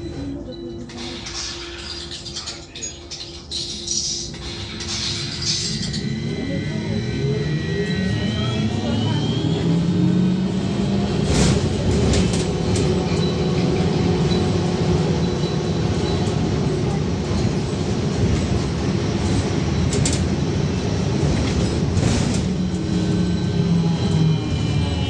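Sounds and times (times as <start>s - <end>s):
bus running gear rumble: 8.4s - 24.5s
bus body rattling: 11.1s - 22.8s.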